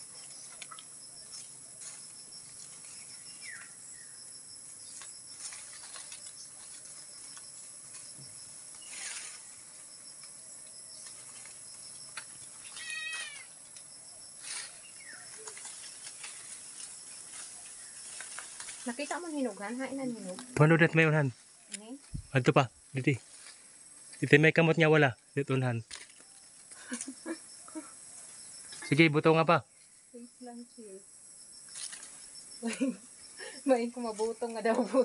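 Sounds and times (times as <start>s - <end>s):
leaves and branches rustling: 0.0s - 35.0s
short high animal calls: 12.6s - 13.6s.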